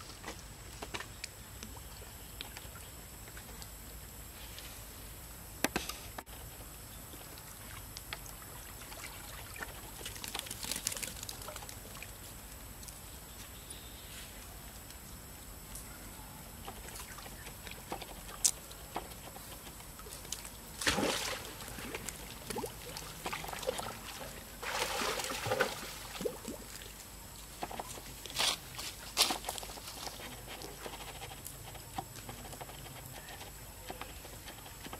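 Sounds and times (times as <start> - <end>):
water sloshing and trickling: 7.3 - 12.3, 19.1 - 28.9
water splashes: 20.3 - 26.9.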